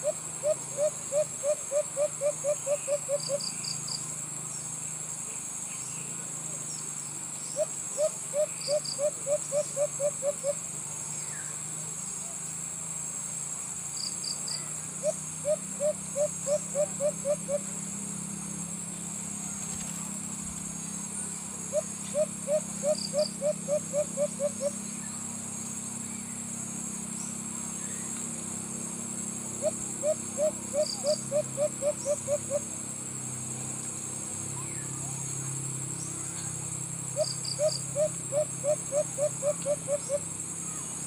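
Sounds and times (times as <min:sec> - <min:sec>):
dove cooing: 0:00.0 - 0:03.4, 0:07.6 - 0:10.6, 0:15.0 - 0:17.7, 0:21.7 - 0:24.8, 0:29.6 - 0:32.6, 0:37.2 - 0:40.2
high insect drone: 0:00.0 - 0:41.0.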